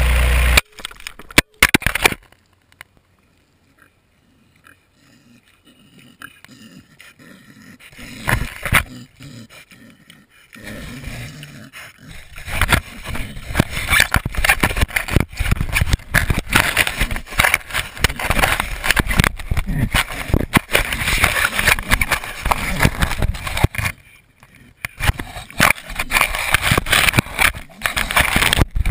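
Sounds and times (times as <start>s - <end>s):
pig scraping and knocking camera: 7.8s - 10.2s, 10.9s - 28.9s.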